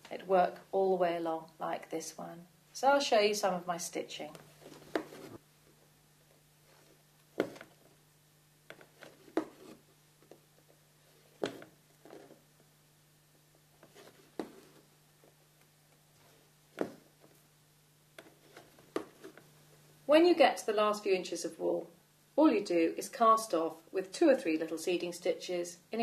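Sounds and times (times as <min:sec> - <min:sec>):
thread rubbing on fabric: 0:04.4 - 0:05.4.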